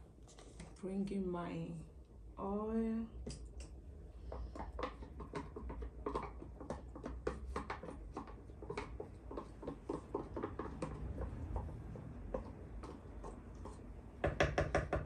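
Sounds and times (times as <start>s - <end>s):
sauce simmering with pops: 3.3s - 14.4s
wooden spoon in pot: 4.2s - 15.0s.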